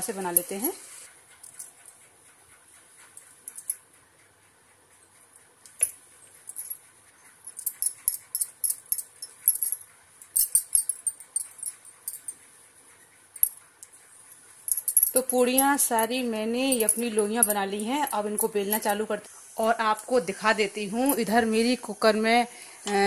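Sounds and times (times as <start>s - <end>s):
glass bangles clinking: 3.4s - 3.8s, 5.7s - 6.8s, 7.5s - 12.4s, 14.7s - 19.1s, 21.0s - 21.4s.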